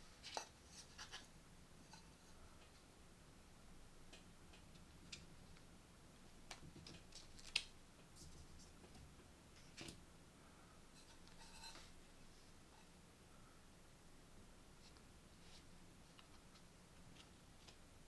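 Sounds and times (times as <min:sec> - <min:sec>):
soft rustle: 0:14.7 - 0:17.9.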